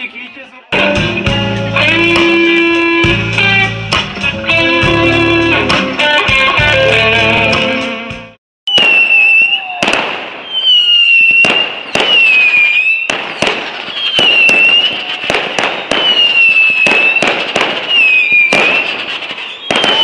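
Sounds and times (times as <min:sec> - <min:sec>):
firework bangs: 0:08.7 - 0:20.0
whistling fireworks: 0:08.7 - 0:20.0.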